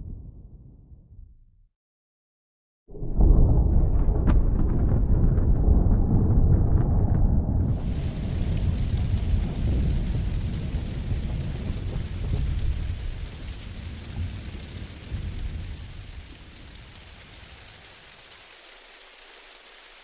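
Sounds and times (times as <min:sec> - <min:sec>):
low thunder rumble: 0:03.0 - 0:17.9
rain pattering on windscreen: 0:07.6 - 0:20.0.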